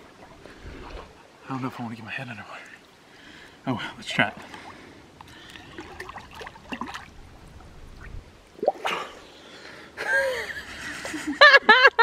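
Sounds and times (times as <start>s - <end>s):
water splashing and dripping: 4.4s - 9.2s.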